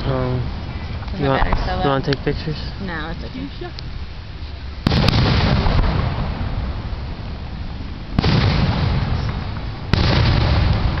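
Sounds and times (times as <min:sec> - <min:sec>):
firework rumble: 0:00.0 - 0:11.0
firework bangs: 0:04.8 - 0:11.0.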